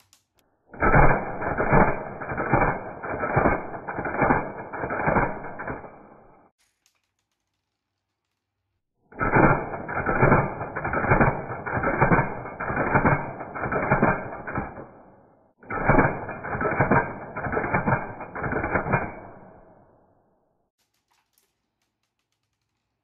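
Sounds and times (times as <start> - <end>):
airsoft rifle rapid metallic clacks: 0.0 - 7.5, 9.2 - 15.0, 15.6 - 19.6.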